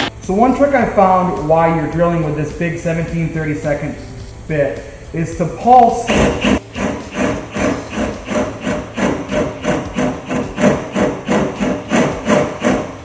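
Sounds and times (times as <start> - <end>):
cordless drill cutting sheet metal: 6.0 - 13.0.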